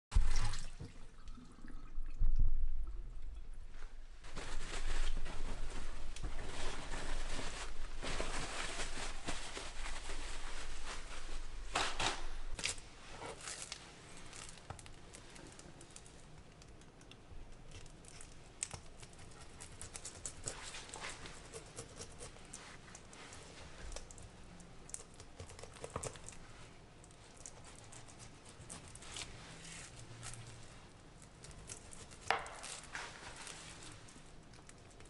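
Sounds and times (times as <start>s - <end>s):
paper towel crinkling: 4.2s - 16.0s, 31.8s - 34.5s.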